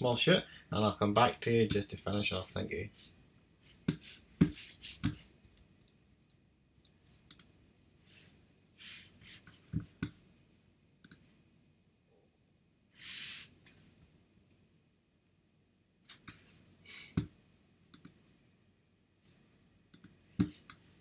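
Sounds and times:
computer mouse clicks: 0:06.8 - 0:07.5, 0:11.0 - 0:11.2, 0:17.9 - 0:18.2, 0:19.9 - 0:20.8.

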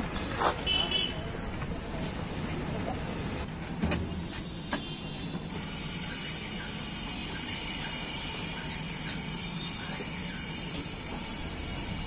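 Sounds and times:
hot griddle hissing: 0:05.5 - 0:12.0.

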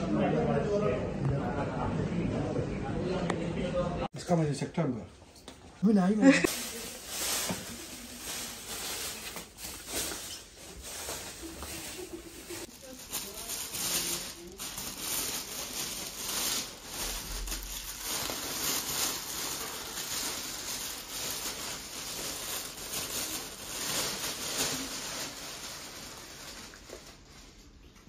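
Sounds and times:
plastic bag rustling: 0:06.3 - 0:27.8
leaves swishing against plastic: 0:06.4 - 0:27.6.

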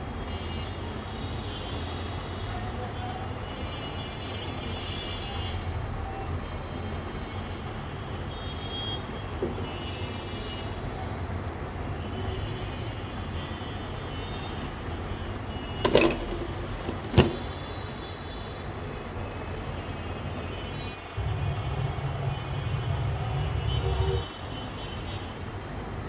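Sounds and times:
metal pot lid clinking: 0:15.8 - 0:17.4.

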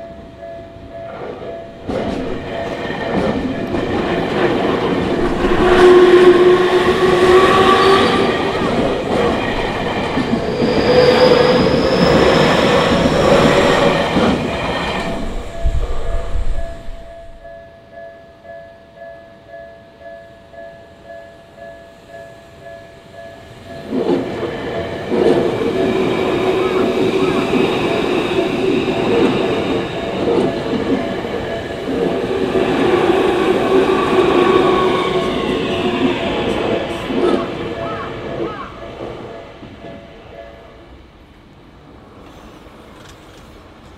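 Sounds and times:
crossing warning bell ringing: 0:00.0 - 0:24.0, 0:25.6 - 0:37.0
train wheels rumbling on rail: 0:00.2 - 0:17.6, 0:23.0 - 0:40.4, 0:41.0 - 0:43.9
train whining tones: 0:01.0 - 0:17.6, 0:21.5 - 0:41.1
wheels clacking over rail joints: 0:01.7 - 0:17.4
falling whine: 0:01.8 - 0:17.4.

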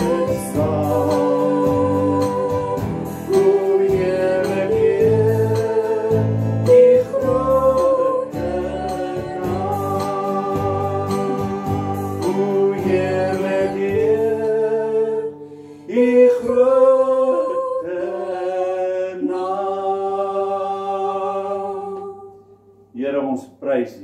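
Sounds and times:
sustained instrumental chords: 0:00.0 - 0:15.8
worship singing: 0:00.0 - 0:23.4.

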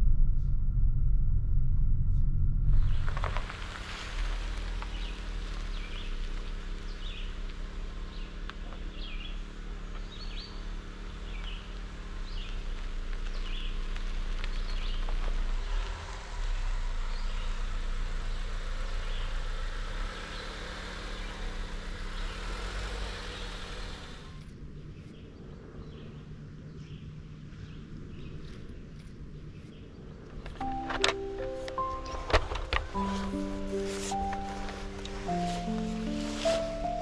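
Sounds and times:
vehicle road rumble: 0:00.0 - 0:37.0
road hiss: 0:03.0 - 0:24.5, 0:30.6 - 0:37.0.

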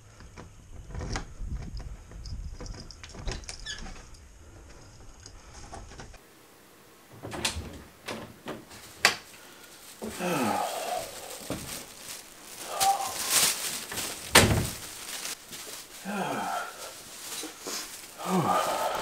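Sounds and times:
door opening: 0:00.8 - 0:04.2, 0:07.1 - 0:09.2, 0:14.2 - 0:14.8
key rattling in a lock: 0:01.1 - 0:04.2
footsteps: 0:07.2 - 0:19.0.

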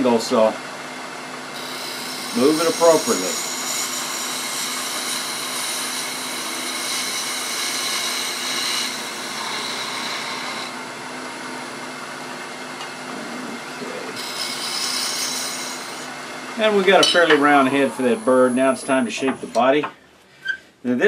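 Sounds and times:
lathe motor humming: 0:00.7 - 0:19.5
gouge cutting wood hiss: 0:01.6 - 0:10.8, 0:14.2 - 0:16.1.

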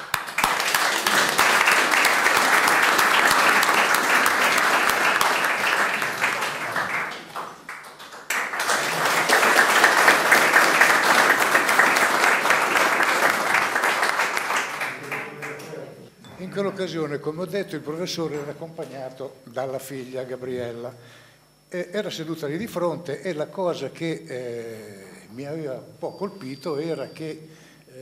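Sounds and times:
audience applause: 0:00.0 - 0:15.8.

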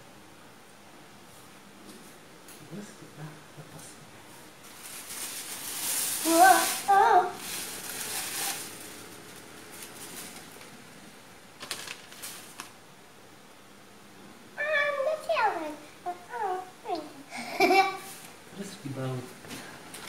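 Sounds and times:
cardboard and plastic rustling: 0:04.6 - 0:10.8, 0:11.6 - 0:12.8.

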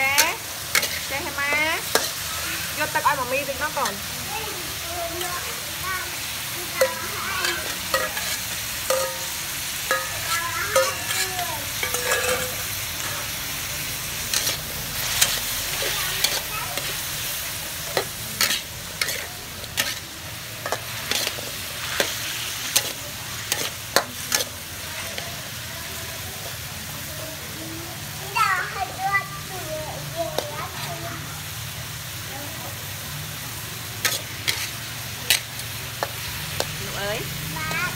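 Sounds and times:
metal spatula scraping wok: 0:00.0 - 0:04.1, 0:06.2 - 0:25.6, 0:33.9 - 0:37.2
food sizzling in a wok: 0:00.0 - 0:37.9.

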